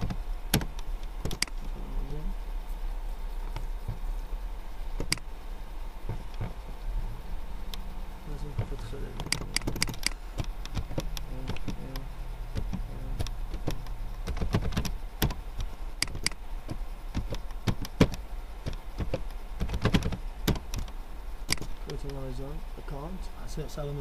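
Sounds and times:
keyboard typing: 0.0 - 1.6, 9.2 - 20.9, 21.5 - 21.8
steady low hum: 0.0 - 24.0.

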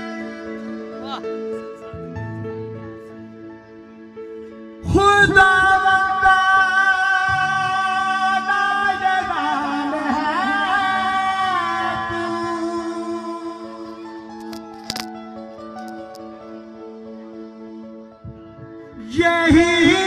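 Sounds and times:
man singing amplified: 0.0 - 1.8, 4.8 - 14.3, 18.3 - 20.0
keyboard drone: 0.0 - 20.0.

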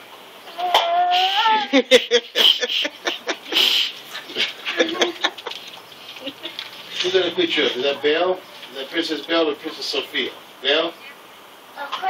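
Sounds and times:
young children's voices: 0.6 - 1.8, 4.2 - 5.3, 11.8 - 12.0.

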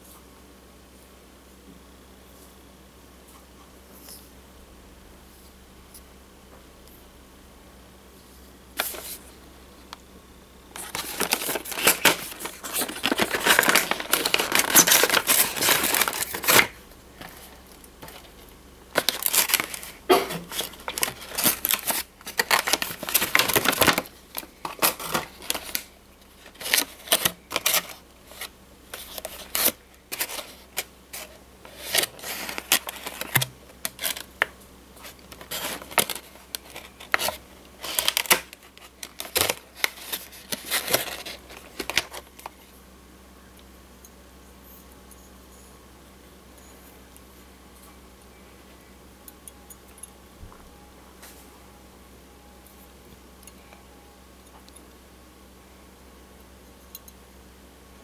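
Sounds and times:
plastic packaging crinkling: 8.8 - 9.2, 10.7 - 42.7.

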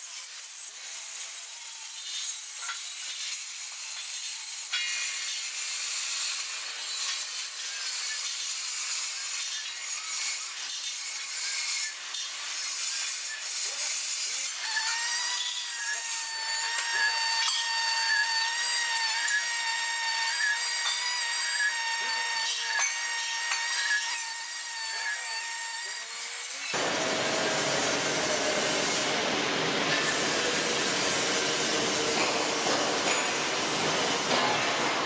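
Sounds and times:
welding arc crackling and hissing: 0.0 - 26.8.

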